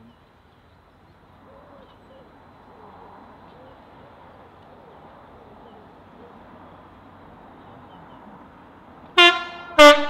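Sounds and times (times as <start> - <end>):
small birds chirping: 0.0 - 9.0
distant diesel locomotive engine: 0.0 - 10.0
pigeon cooing: 1.4 - 6.8.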